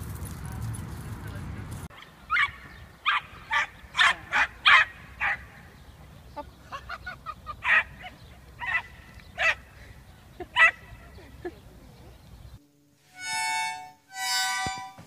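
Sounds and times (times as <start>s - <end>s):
small dogs yapping: 2.0s - 5.5s, 7.6s - 9.7s, 10.5s - 10.9s.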